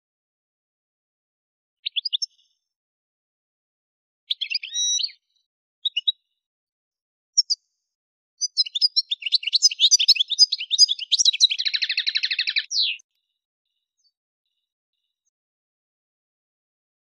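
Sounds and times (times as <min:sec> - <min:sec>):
goldfinch chirps and song: 0:01.8 - 0:02.6, 0:04.3 - 0:06.4, 0:07.4 - 0:07.7, 0:08.4 - 0:15.4.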